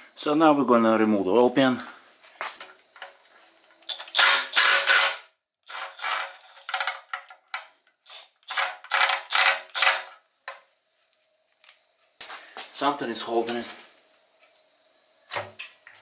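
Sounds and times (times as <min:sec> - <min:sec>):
hand ratchet clicking: 0:03.9 - 0:07.0, 0:08.0 - 0:10.1.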